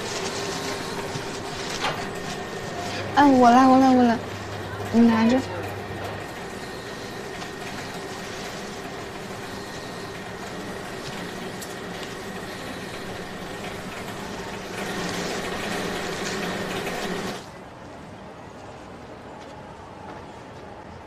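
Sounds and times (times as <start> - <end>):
wrapping machine motor hum: 0.0 - 17.5.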